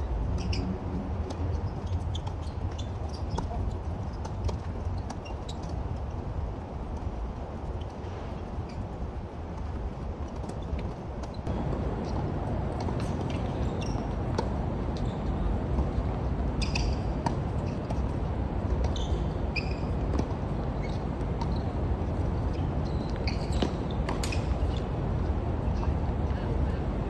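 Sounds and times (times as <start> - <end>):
shoe squeaks: 0.3 - 0.8, 1.4 - 5.8, 13.0 - 14.2, 15.0 - 18.0, 18.8 - 21.8, 22.5 - 24.9
tennis balls struck and bouncing: 10.3 - 25.0.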